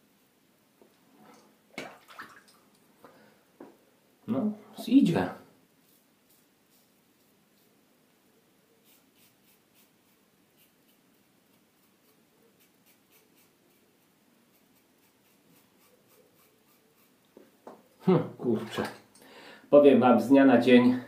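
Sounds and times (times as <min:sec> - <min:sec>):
razor scratching stubble: 0:05.8 - 0:07.7, 0:08.8 - 0:17.2.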